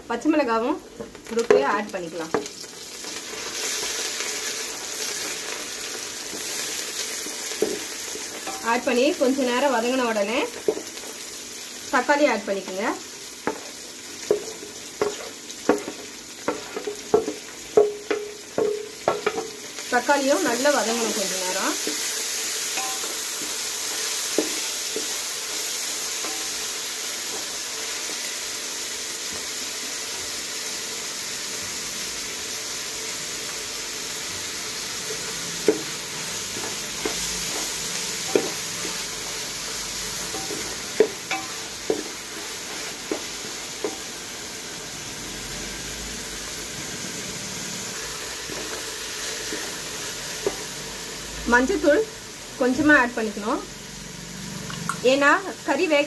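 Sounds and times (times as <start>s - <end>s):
vegetables sizzling in oil: 0.0s - 56.0s
spoon clinking against metal pot: 22.8s - 23.2s.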